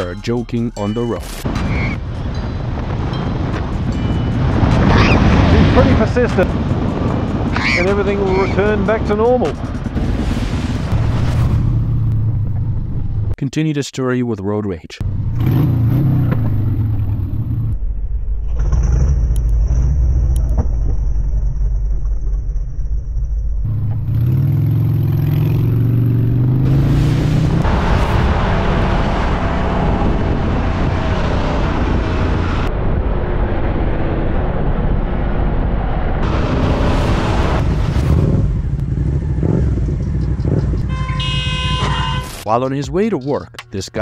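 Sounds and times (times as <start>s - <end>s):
wind noise: 1.4s - 13.3s, 26.6s - 42.2s
motorcycle engine revving: 15.0s - 17.8s, 23.6s - 32.7s, 36.2s - 42.2s.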